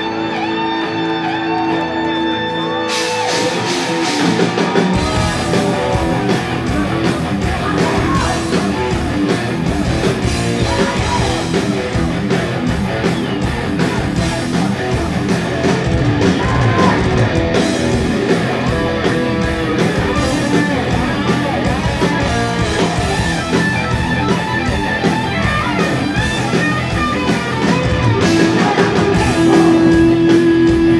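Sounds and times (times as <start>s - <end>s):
heavy metal band playing live: 0.0s - 30.9s
person singing: 4.8s - 9.1s, 28.2s - 30.7s.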